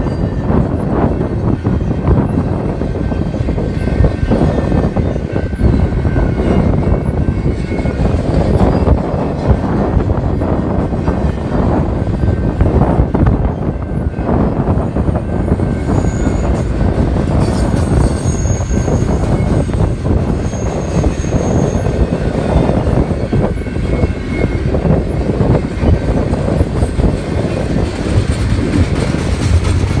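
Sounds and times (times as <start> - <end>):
train wheels clattering on rail: 0.0 - 30.0
wind buffeting microphone: 0.0 - 30.0
high wheel squeals: 13.5 - 27.8.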